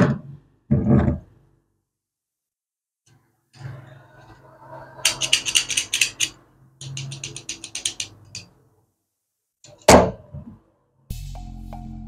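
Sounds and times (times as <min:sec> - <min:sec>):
metal lock parts clicking: 0:05.0 - 0:08.5.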